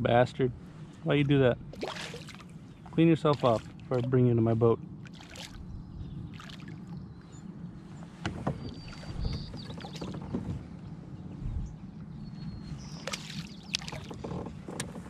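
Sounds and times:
light water splashing: 1.2 - 4.2, 5.0 - 5.7, 6.3 - 7.0, 13.0 - 14.3.

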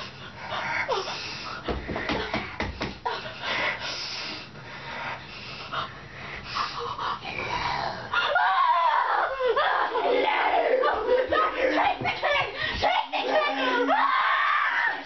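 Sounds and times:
person breathing heavily: 0.0 - 8.4.

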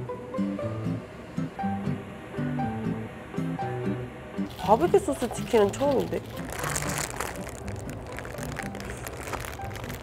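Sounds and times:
rhythmic background music: 0.4 - 10.0.

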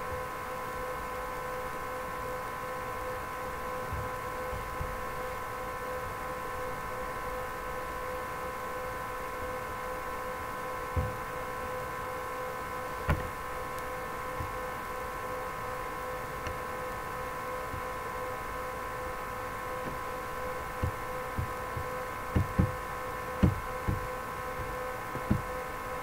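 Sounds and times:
electrical hum: 0.0 - 26.0
soft low thumps: 11.0 - 11.3, 13.0 - 13.5, 19.8 - 25.6.

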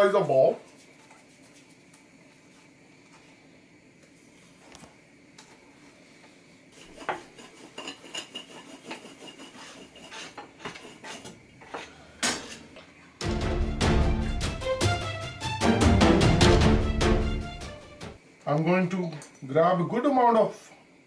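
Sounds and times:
rolling pin rubbing dough: 6.8 - 12.0.

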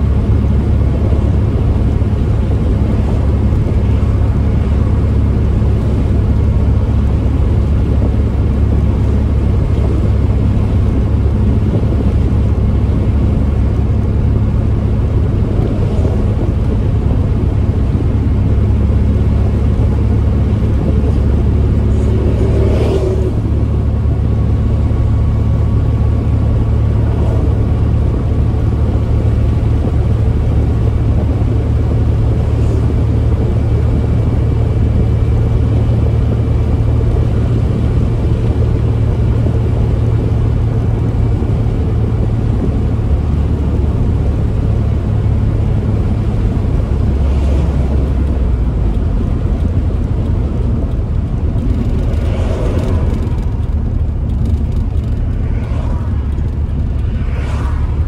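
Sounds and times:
car engine drone from inside: 0.0 - 58.0
road noise: 0.0 - 58.0
brief whoosh: 55.2 - 58.0.

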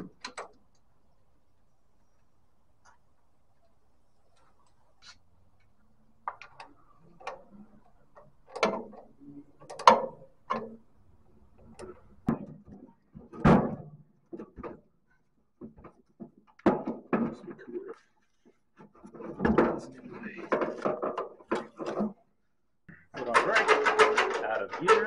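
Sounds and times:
metal clanking: 23.2 - 25.0.

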